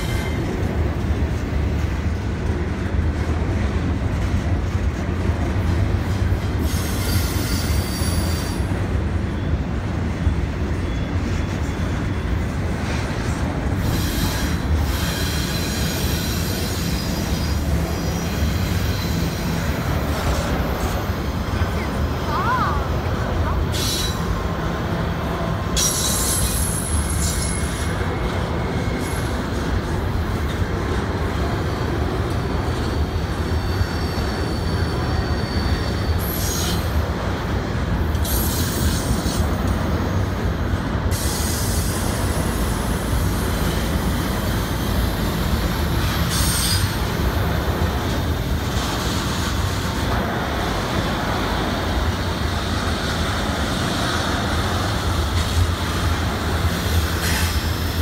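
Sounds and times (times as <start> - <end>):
freight train wheels rumbling: 0.0 - 58.0
high-pitched wheel squeals: 6.6 - 8.7, 33.2 - 36.9.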